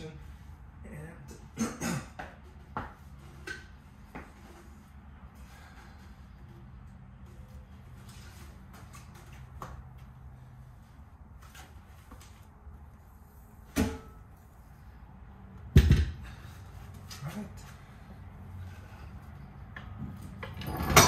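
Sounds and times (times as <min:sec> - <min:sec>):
heavy metal thud with ring: 0:13.8 - 0:14.2.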